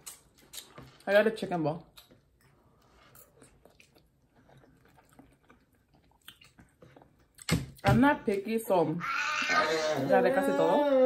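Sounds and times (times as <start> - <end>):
close-up chewing: 0.0 - 1.1, 1.8 - 7.8.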